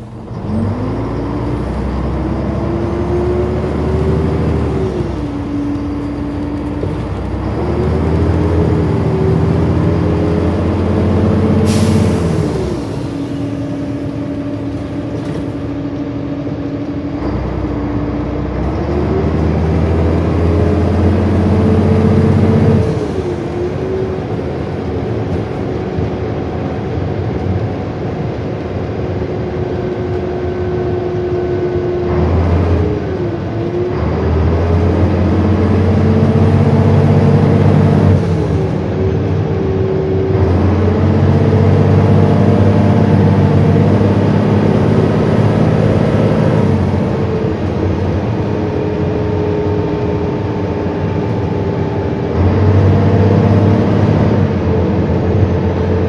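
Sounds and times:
bus diesel engine changing gear: 0.0s - 56.0s
road noise: 0.0s - 56.0s.

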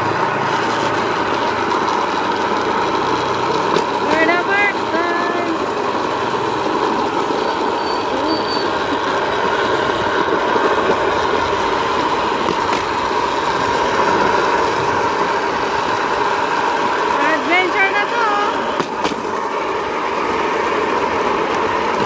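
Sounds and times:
steel wheels rolling on rails: 0.0s - 22.0s
faint high wheel squeal: 7.3s - 9.4s.

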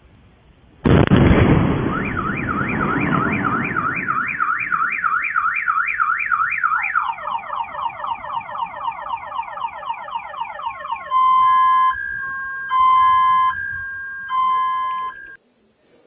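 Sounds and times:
explosion rumble: 0.8s - 5.6s
car alarm wailing: 1.6s - 15.4s.

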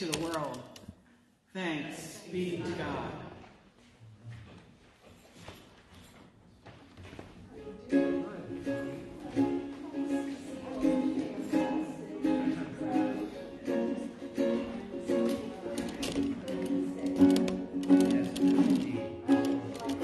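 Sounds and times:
ukulele strumming chords: 7.8s - 20.0s.

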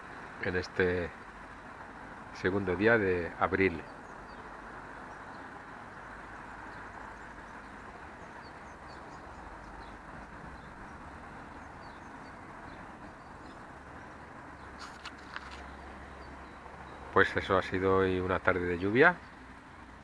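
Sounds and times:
distant traffic hum: 0.0s - 20.0s
bird chirps: 6.6s - 17.5s.

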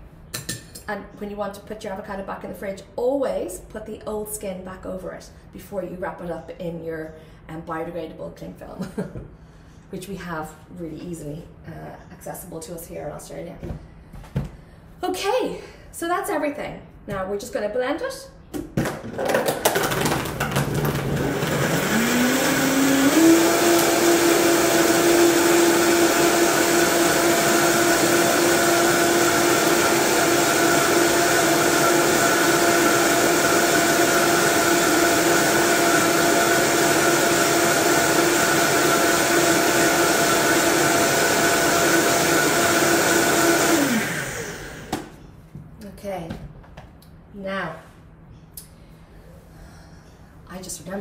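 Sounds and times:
blender motor running: 19.2s - 45.1s.

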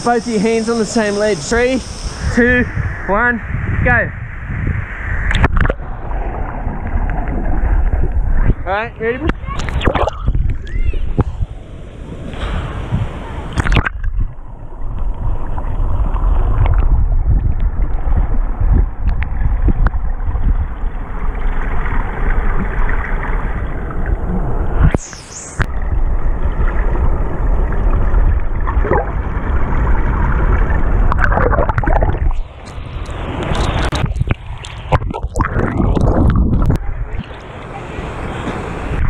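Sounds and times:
muffled underwater rumble: 0.0s - 8.7s, 9.3s - 39.0s
water splash: 4.4s - 8.6s, 12.2s - 14.3s, 19.4s - 39.0s.

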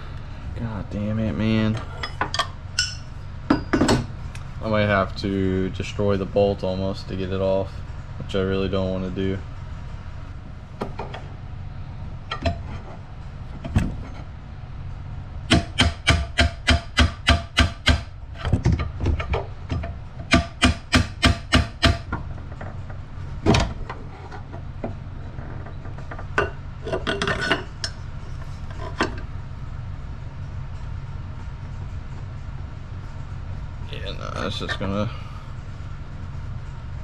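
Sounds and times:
light metal taps and clinks: 2.0s - 4.0s
hammer striking chisel on bolt: 15.5s - 18.1s, 19.7s - 22.2s.

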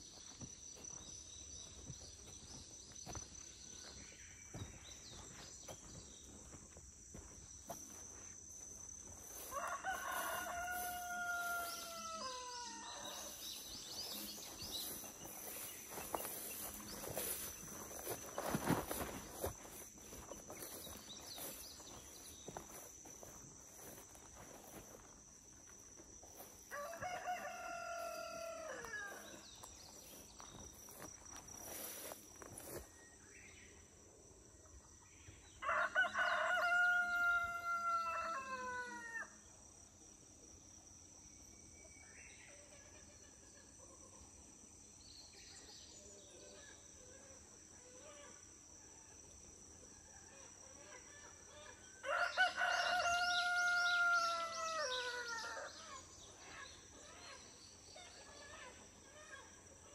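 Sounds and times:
rooster crowing: 9.3s - 13.4s, 26.7s - 29.4s, 35.6s - 39.3s, 52.0s - 55.8s.

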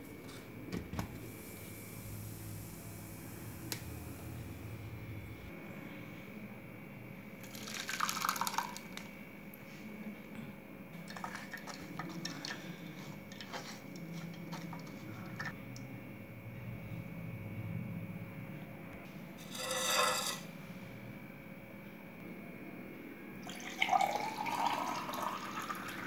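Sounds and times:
juice pouring and splashing: 7.4s - 9.0s, 11.1s - 13.6s, 23.4s - 26.0s
spatula scraping mesh strainer: 19.4s - 20.5s.

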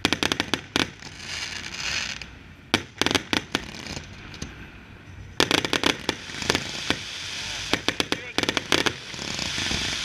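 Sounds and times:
firework bangs: 0.0s - 4.6s, 5.4s - 10.0s
fireworks launching hiss: 0.0s - 4.7s, 5.4s - 10.0s.

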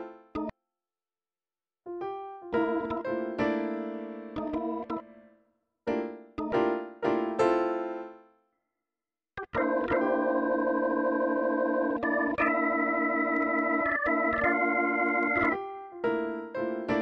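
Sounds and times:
piano chords: 2.0s - 5.3s, 9.4s - 17.0s
held organ-like chords: 9.4s - 15.6s.

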